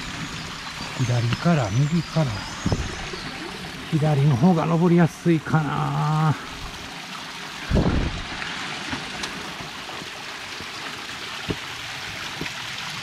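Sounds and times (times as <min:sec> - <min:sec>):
stream rushing over rocks: 0:00.0 - 0:13.0
low thump: 0:07.7 - 0:08.3.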